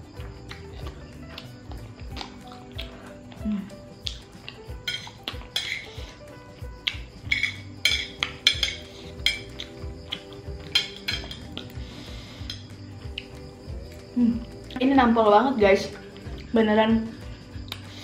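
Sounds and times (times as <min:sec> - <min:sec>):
background music: 0:00.0 - 0:18.0
metal chopsticks clinking on plate: 0:04.9 - 0:05.9, 0:07.3 - 0:11.6.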